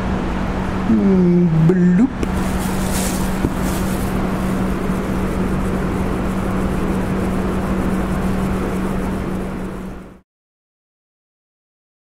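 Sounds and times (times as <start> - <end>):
low mechanical hum: 0.0 - 10.2
even rushing noise: 2.2 - 10.0.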